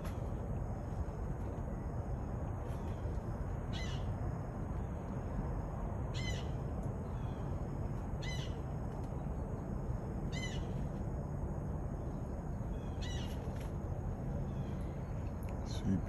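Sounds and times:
blue jay calling: 0:03.7 - 0:04.2, 0:06.1 - 0:07.5, 0:08.2 - 0:08.7, 0:10.3 - 0:10.8, 0:12.7 - 0:13.6.

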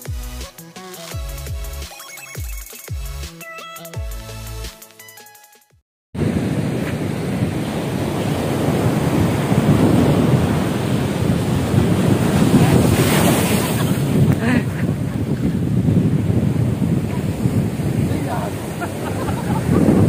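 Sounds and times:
sea surf breaking: 0:06.2 - 0:20.0
wind buffeting microphone: 0:06.2 - 0:20.0.

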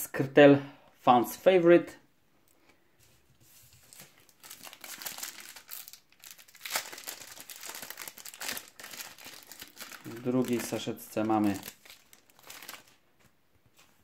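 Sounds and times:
foil packet crinkling: 0:03.8 - 0:13.1.

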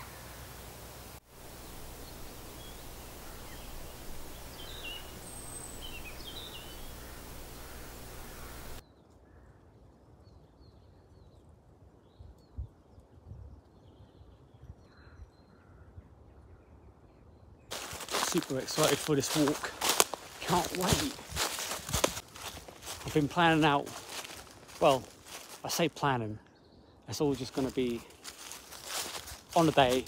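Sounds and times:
small birds chirping: 0:00.0 - 0:08.8, 0:17.7 - 0:30.0
steady outdoor hiss: 0:00.0 - 0:08.9, 0:17.7 - 0:30.0.

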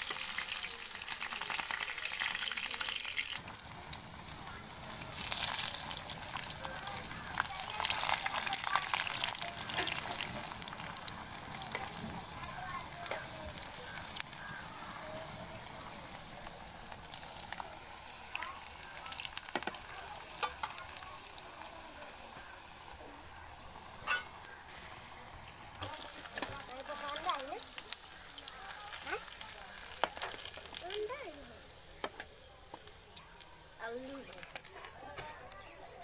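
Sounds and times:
hot oil sizzling and crackling: 0:00.0 - 0:36.0
metal spatula scraping pan: 0:24.0 - 0:24.4.

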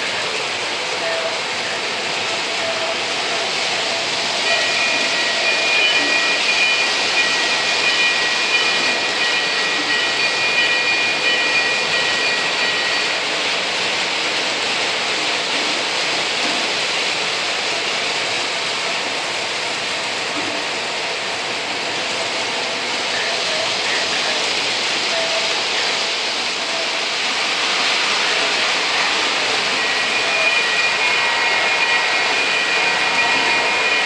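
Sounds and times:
model trains rumbling on track: 0:00.0 - 0:34.0.

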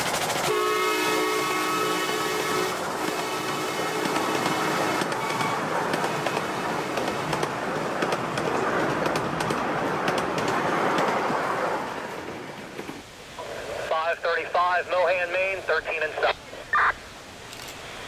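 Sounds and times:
train wheels rumbling on rails: 0:00.0 - 0:13.9
wheels clicking over rail joints: 0:03.0 - 0:13.0.

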